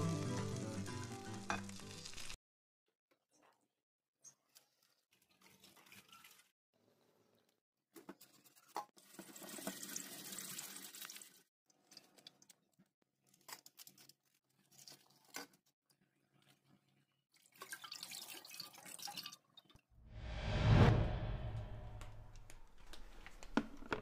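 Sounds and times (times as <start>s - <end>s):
water splashing in a steel sink: 4.4s - 6.5s, 8.4s - 12.2s, 16.4s - 19.8s.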